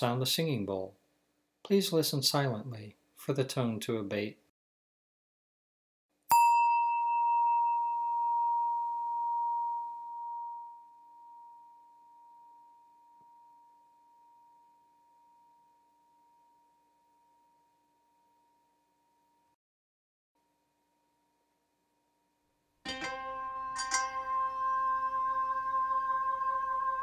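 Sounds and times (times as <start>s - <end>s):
singing bowl ringing: 6.3s - 19.6s, 20.6s - 27.0s.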